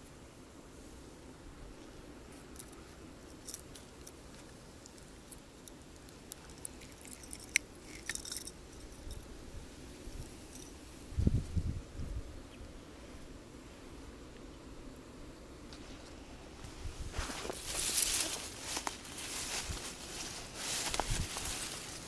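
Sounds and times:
faint wind rumble: 0:06.6 - 0:14.2, 0:15.0 - 0:22.0.

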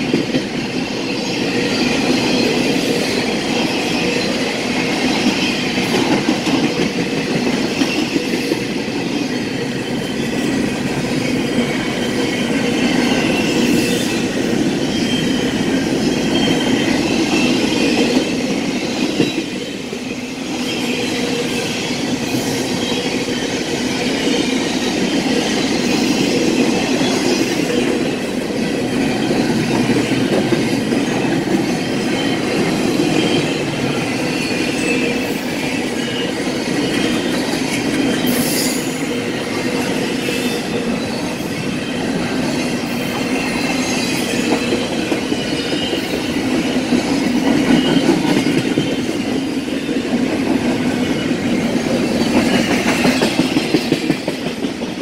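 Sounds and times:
train wheels rumbling on rails: 0:00.0 - 0:55.0.

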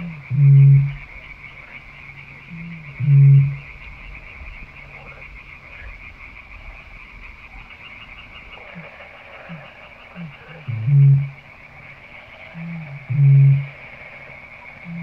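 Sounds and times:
bittern booming: 0:10.7 - 0:11.4.

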